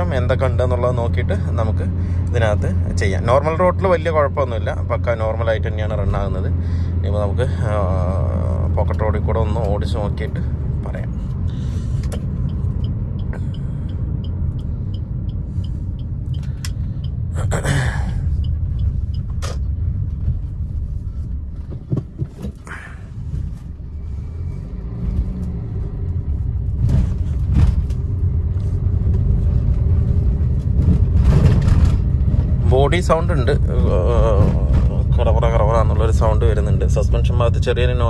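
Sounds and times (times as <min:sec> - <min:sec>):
car cabin road rumble: 0:00.0 - 0:38.0
knocks and rattles: 0:21.6 - 0:22.6.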